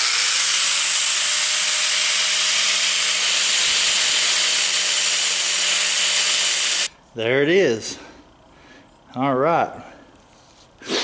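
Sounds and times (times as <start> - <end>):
angle grinder grinding metal: 0.0 - 6.9.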